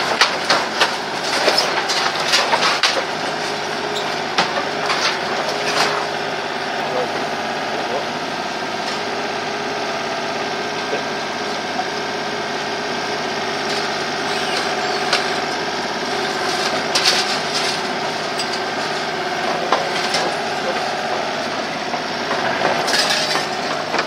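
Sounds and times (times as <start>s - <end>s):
metal clanks and rattles: 0.0s - 6.2s, 16.2s - 24.0s
excavator engine running: 0.0s - 24.0s.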